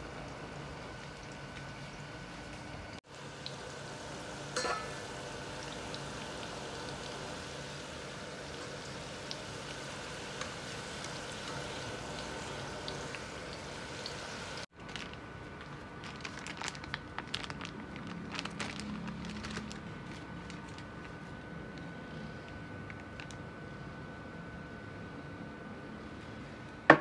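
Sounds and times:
fries sizzling in hot oil: 0:00.0 - 0:14.8.

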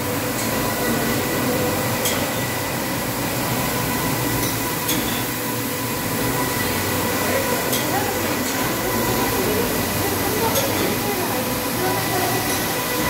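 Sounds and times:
carpet washing machine drone: 0:00.0 - 0:13.0.

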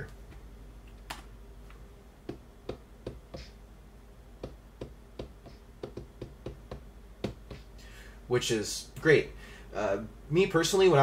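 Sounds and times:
fingers tapping rubber pads: 0:02.2 - 0:03.6, 0:04.4 - 0:07.8.

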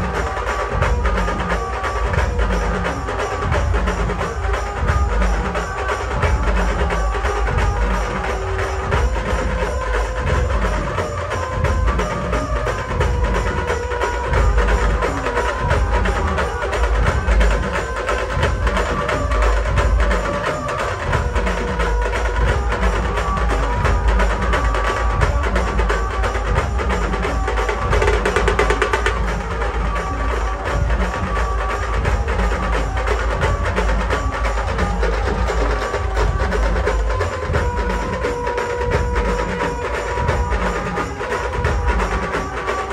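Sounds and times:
drum band playing fast rhythm: 0:00.0 - 0:42.9
loud procession music: 0:00.0 - 0:42.9
deep bass drum: 0:14.3 - 0:40.9.

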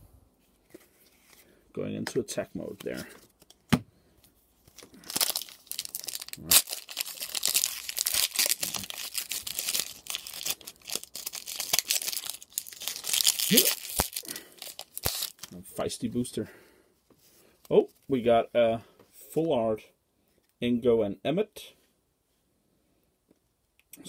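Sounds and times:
foil pack crinkling and tearing: 0:04.7 - 0:15.6.

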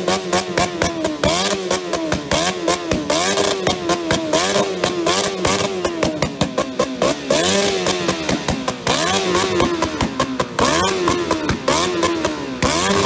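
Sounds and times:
exhaust backfire bangs: 0:00.0 - 0:13.0
motorcycle engine revving: 0:00.0 - 0:13.0.

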